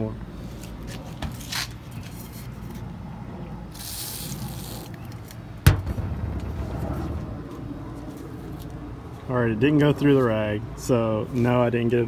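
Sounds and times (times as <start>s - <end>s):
sharp knock: 5.7s - 7.4s.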